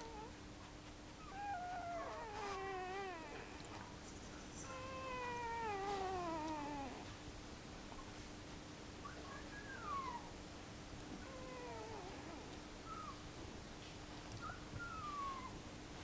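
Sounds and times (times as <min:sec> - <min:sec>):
puppy whining: 0:00.0 - 0:00.4, 0:01.1 - 0:07.2, 0:09.0 - 0:10.4, 0:11.1 - 0:13.4, 0:14.4 - 0:15.7
faint steady hum: 0:00.0 - 0:16.0.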